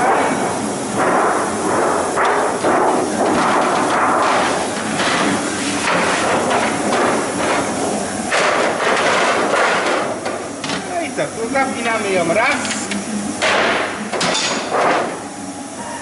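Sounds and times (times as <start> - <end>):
printing press clattering and hissing: 0.0 - 16.0
printing press knocks: 2.2 - 10.9, 13.4 - 15.3.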